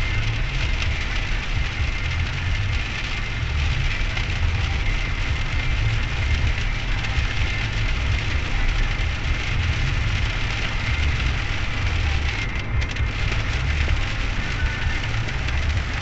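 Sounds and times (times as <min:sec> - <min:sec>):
car rumbling on road: 0:00.0 - 0:16.0
rain on windshield: 0:00.0 - 0:16.0.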